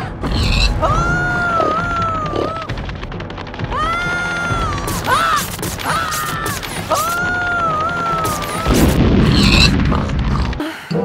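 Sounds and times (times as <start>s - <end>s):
deep boom: 8.7s - 10.6s.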